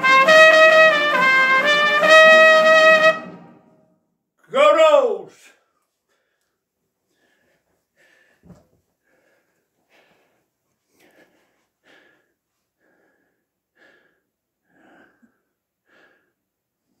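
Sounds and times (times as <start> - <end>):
elderly man wheezy breathing: 6.1 - 16.6.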